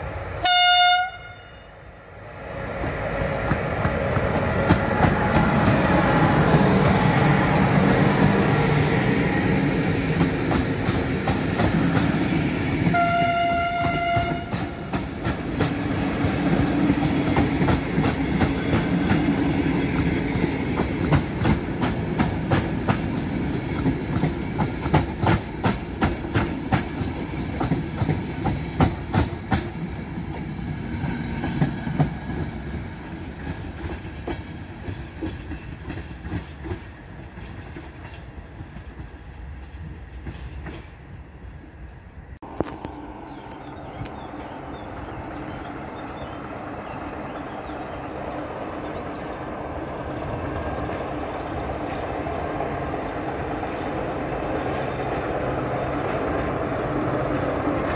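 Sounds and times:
train rumbling past: 0:00.0 - 0:57.9
train horn blast: 0:00.4 - 0:01.8, 0:12.8 - 0:15.0
wheels clicking over rail joints: 0:09.9 - 0:41.2.

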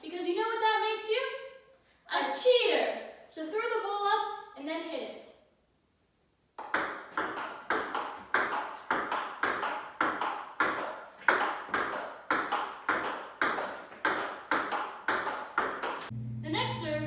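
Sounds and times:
table tennis ball clicking: 0:06.6 - 0:16.1.

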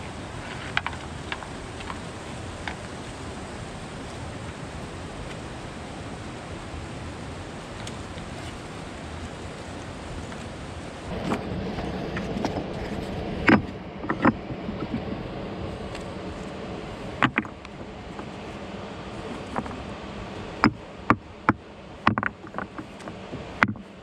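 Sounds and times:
river water rushing: 0:00.0 - 0:24.0
stones clacking against rock: 0:17.2 - 0:17.7.

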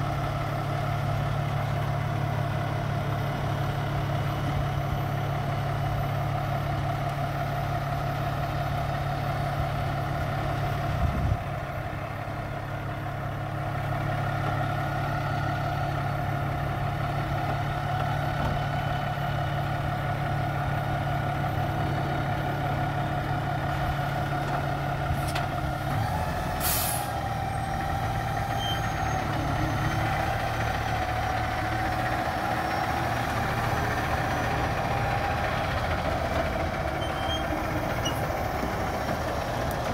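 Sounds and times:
diesel truck engine droning: 0:00.0 - 0:39.9
air brake hiss: 0:26.6 - 0:27.2.

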